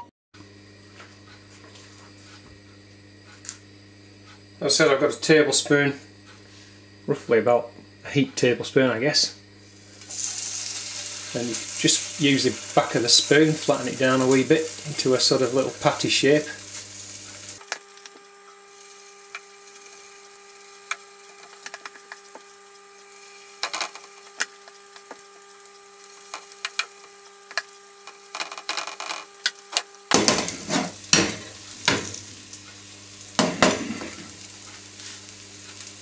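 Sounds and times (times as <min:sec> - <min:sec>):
batter sizzling in oil: 0:09.5 - 0:36.0.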